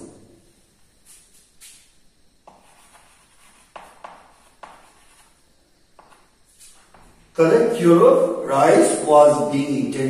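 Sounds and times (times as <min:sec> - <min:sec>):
chalk scratching on blackboard: 0:02.4 - 0:07.2.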